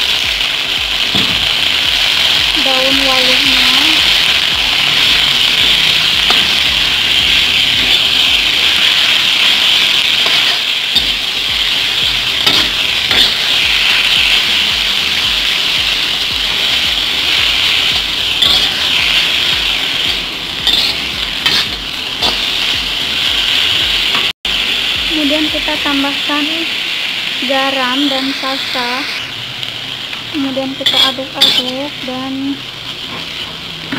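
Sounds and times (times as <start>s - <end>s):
vegetables sizzling in oil: 0.0s - 33.9s
metal spatula scraping wok: 2.7s - 22.8s, 30.6s - 32.1s.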